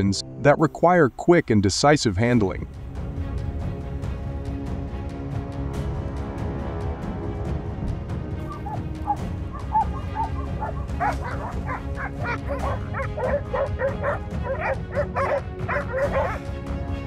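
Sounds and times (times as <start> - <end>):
background music: 0.0 - 17.0
dogs barking rapidly: 8.5 - 16.4.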